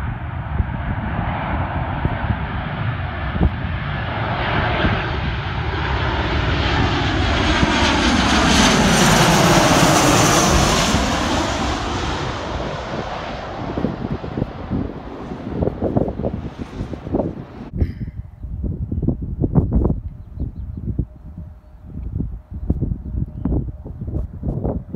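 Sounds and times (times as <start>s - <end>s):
jet plane passing overhead: 0.0s - 18.0s.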